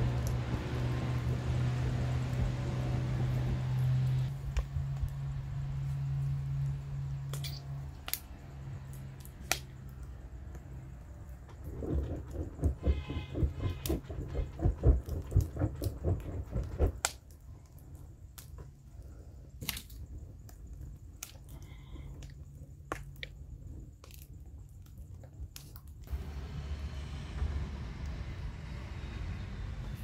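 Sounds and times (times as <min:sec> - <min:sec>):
firewood crackling and popping: 0:00.0 - 0:26.8
hand fan swishing: 0:11.6 - 0:17.2.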